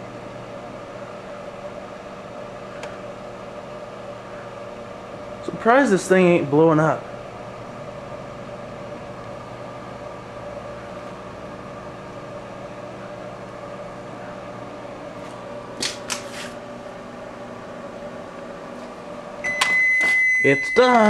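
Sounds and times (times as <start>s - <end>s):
microwave oven humming: 0.0s - 21.0s
sharp snaps of burning disc: 15.8s - 16.3s.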